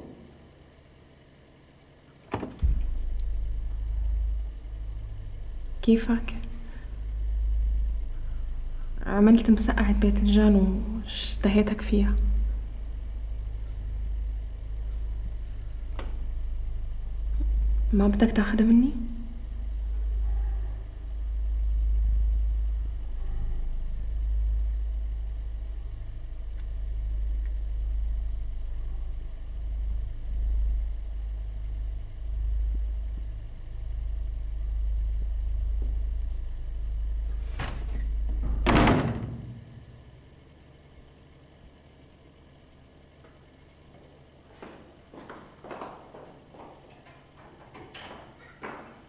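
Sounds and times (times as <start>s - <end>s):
loud knocks: 2.3s - 3.8s, 37.6s - 39.8s
deep low rumble: 2.6s - 40.2s.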